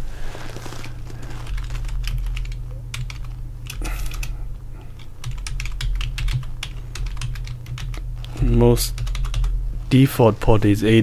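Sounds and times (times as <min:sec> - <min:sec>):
low steady hum: 0:00.0 - 0:11.0.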